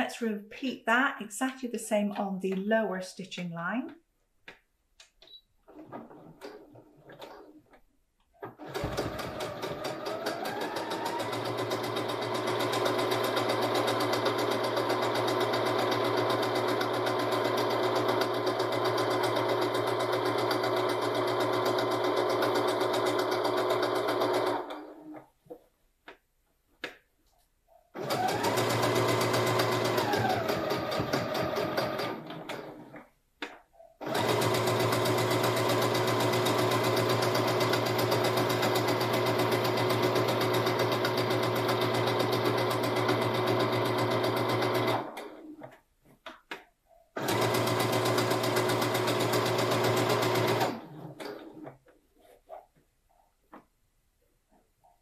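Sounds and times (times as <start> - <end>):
sewing machine stitching: 8.4 - 25.3, 28.0 - 33.1, 34.0 - 45.8, 47.1 - 52.6.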